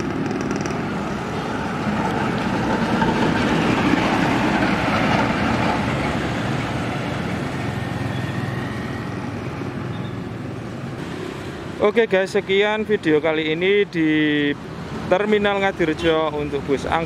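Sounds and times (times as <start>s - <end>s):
bus passing by: 0.0s - 12.0s.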